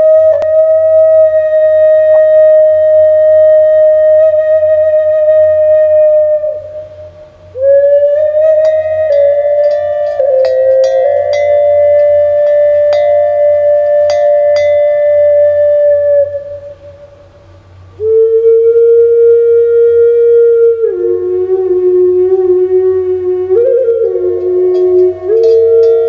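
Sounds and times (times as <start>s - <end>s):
flute playing long notes: 0.0s - 26.0s
bell strikes ringing: 9.1s - 15.0s.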